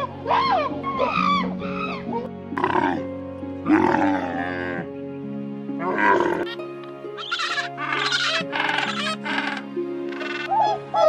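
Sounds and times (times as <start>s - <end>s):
monkey cries: 0.0s - 3.0s, 5.8s - 6.6s, 7.2s - 11.0s
background music: 0.0s - 11.0s
harsh animal call: 5.8s - 6.6s, 7.2s - 11.0s.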